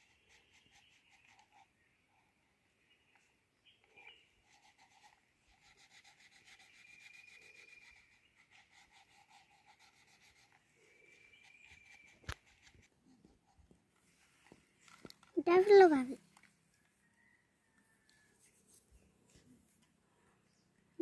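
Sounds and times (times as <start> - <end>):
crayon scratching on paper: 0.0 - 1.7, 4.0 - 13.7.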